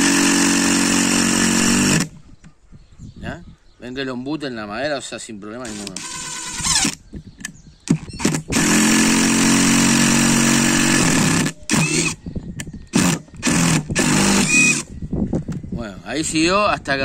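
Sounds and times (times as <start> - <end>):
impact driver hammering screw: 5.7 - 7.0, 7.9 - 12.2, 12.9 - 14.8.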